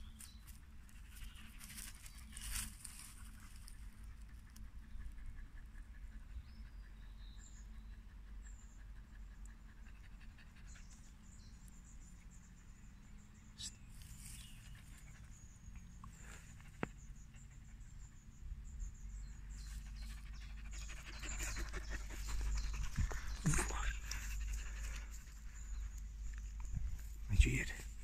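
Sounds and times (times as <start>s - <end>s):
dog panting: 4.0s - 11.6s, 19.5s - 26.4s.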